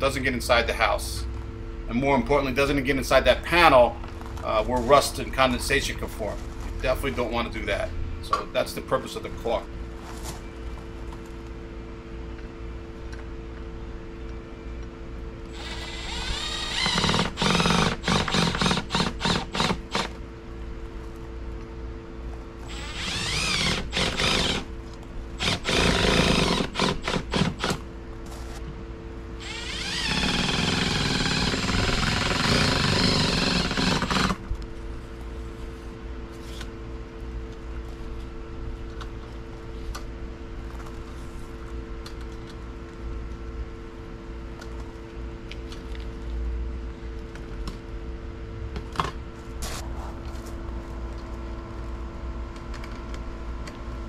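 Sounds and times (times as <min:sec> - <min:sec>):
cordless drill whining: 0:15.5 - 0:20.1, 0:22.7 - 0:24.7, 0:25.4 - 0:27.8, 0:29.4 - 0:34.4.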